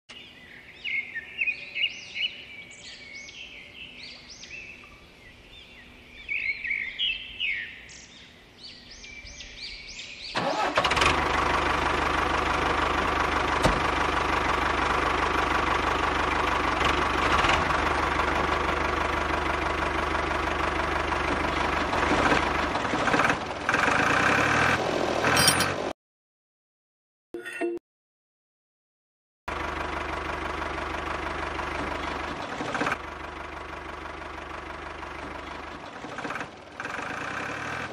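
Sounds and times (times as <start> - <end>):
birds chirping: 0.1 - 10.7, 35.2 - 37.0
engine running steadily: 10.4 - 25.9, 29.5 - 37.9.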